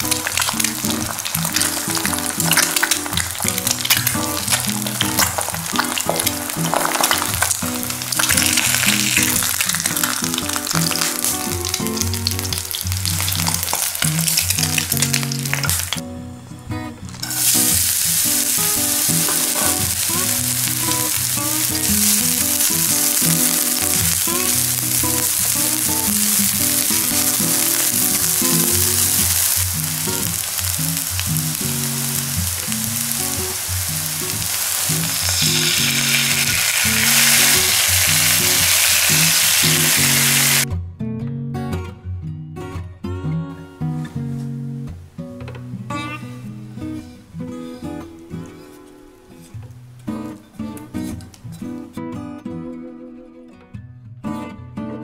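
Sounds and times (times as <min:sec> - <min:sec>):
eggs sizzling in hot oil: 0:00.0 - 0:16.0, 0:17.2 - 0:40.6
green onions sizzling in oil: 0:00.0 - 0:16.0, 0:17.2 - 0:40.7.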